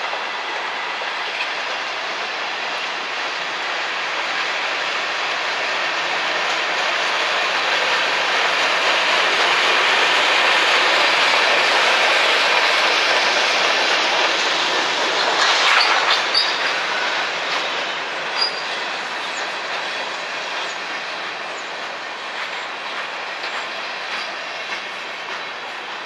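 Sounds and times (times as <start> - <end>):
freight train rumbling and rattling: 0.0 - 26.0.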